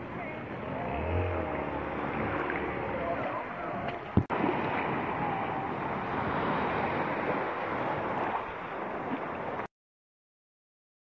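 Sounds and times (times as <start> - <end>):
sea water lapping: 0.0 - 9.7.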